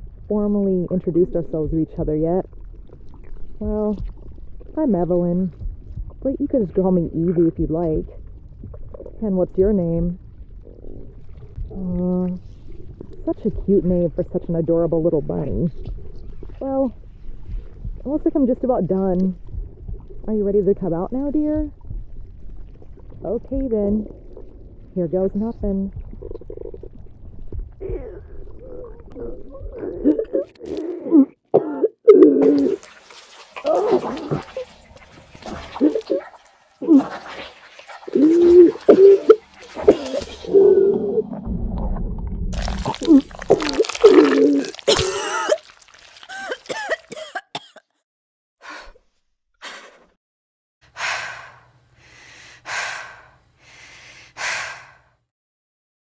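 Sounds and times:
wet gurgling heaves: 0.0 - 47.7
retching gulps: 0.9 - 14.4, 15.0 - 47.8
heavy panting breaths: 50.9 - 55.2.

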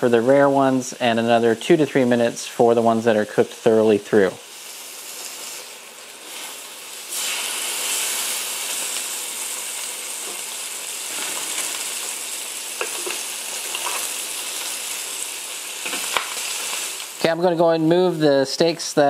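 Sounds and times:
fish sizzling in a pan: 3.3 - 18.2
metal tongs tapping a pan: 12.8 - 14.1.

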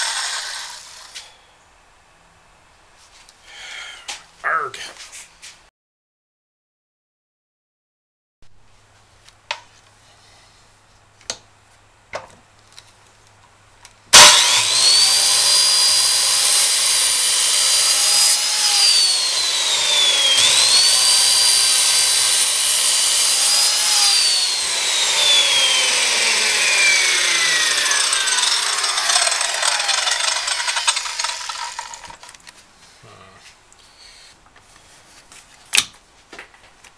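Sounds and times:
circular saw cutting wood: 0.0 - 1.3, 14.1 - 32.4.

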